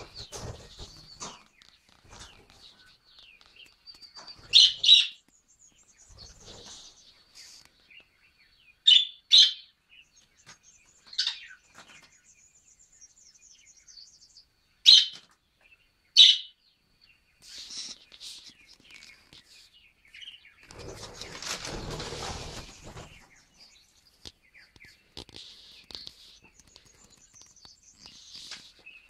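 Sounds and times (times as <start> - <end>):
budgerigars chirping sharply: 4.5 - 5.2, 14.9 - 15.2, 16.2 - 16.6.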